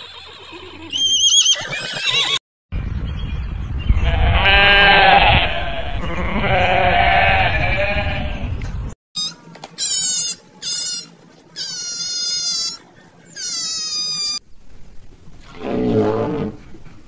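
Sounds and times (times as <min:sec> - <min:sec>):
low wind rumble: 0:02.7 - 0:09.0
sheep bleating: 0:04.1 - 0:08.4.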